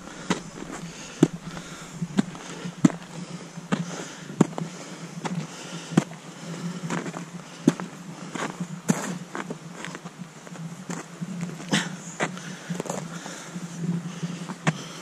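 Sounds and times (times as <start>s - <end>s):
footsteps crunching on snow: 0.0s - 6.1s
steady low hum: 0.0s - 9.0s.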